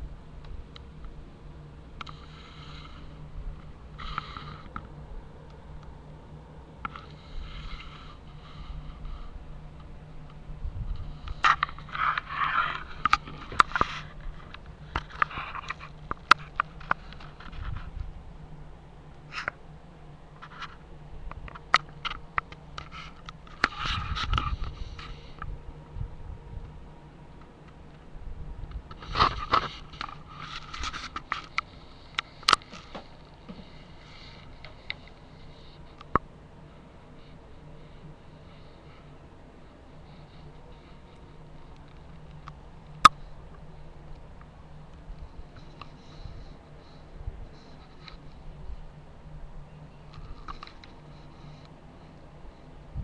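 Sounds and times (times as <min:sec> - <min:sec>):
steady low hum: 0:00.0 - 0:53.0
rustling and scraping: 0:02.0 - 0:05.0, 0:06.8 - 0:18.3, 0:19.2 - 0:25.6, 0:28.7 - 0:49.0, 0:50.0 - 0:52.7
person sniffing: 0:04.0 - 0:04.7.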